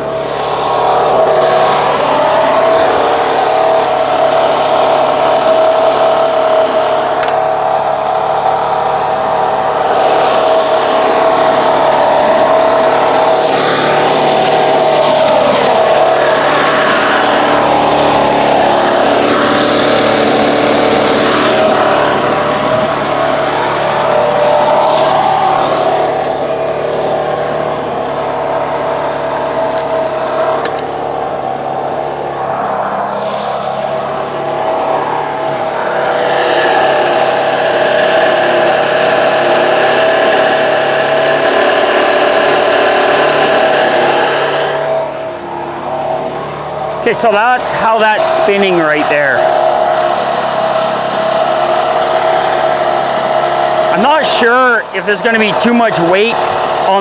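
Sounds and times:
generator engine running: 0.0 - 57.0.

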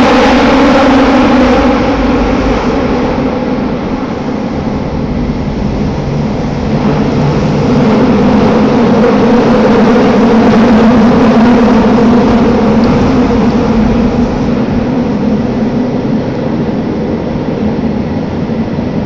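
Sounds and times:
subway train rumbling in tunnel: 0.0 - 19.0.

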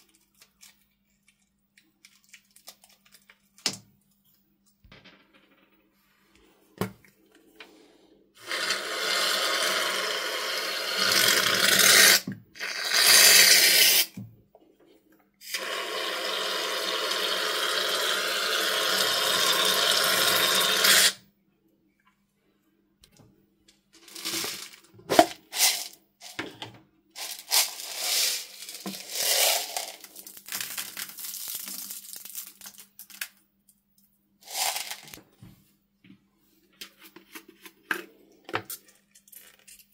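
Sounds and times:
beads clicking: 27.2 - 33.4, 34.4 - 35.2.

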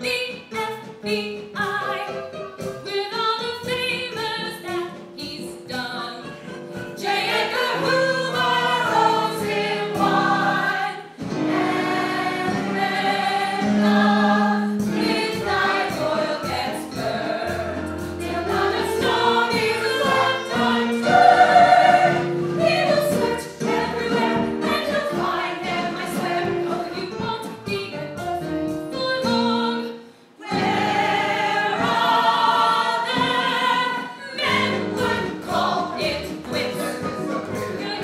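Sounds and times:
men and women singing in chorus: 7.0 - 27.0, 30.4 - 38.0.

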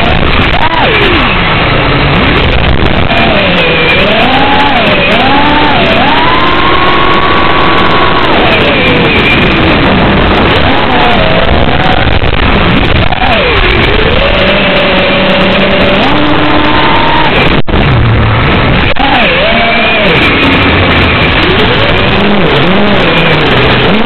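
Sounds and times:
drone motors whining: 0.0 - 24.0.

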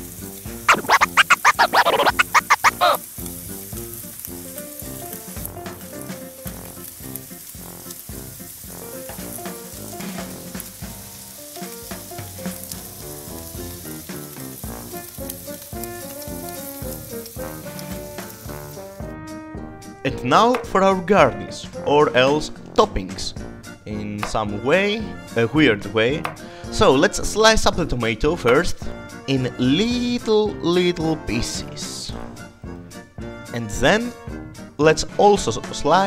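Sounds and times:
music: 0.0 - 36.0
rhythmic scratchy strokes: 0.7 - 3.0
bread sizzling on grill pan: 3.0 - 19.0.

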